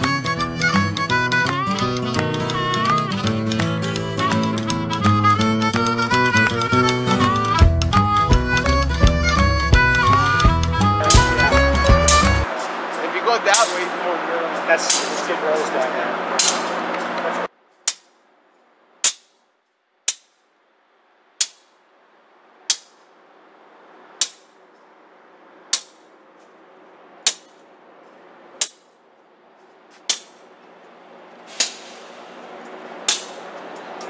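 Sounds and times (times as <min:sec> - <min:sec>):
diesel engine humming: 0:00.0 - 0:17.6, 0:21.9 - 0:34.0
locomotive bell clanging: 0:10.1 - 0:17.5.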